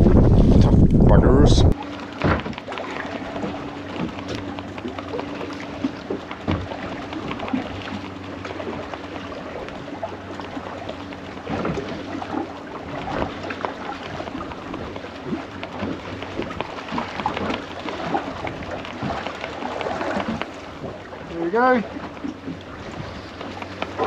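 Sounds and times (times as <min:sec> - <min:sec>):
wind noise: 0:00.0 - 0:02.6
boat engine low hum: 0:00.0 - 0:24.0
water noise: 0:00.0 - 0:24.0.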